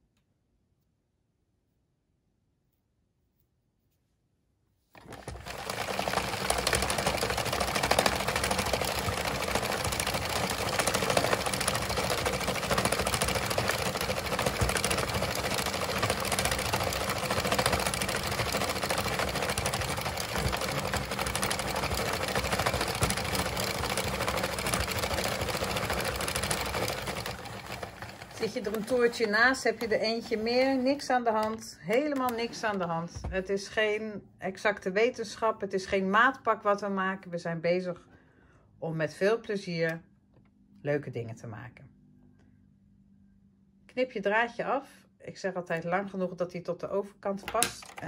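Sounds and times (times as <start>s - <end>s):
knitting machine needles clattering: 5.0s - 32.9s.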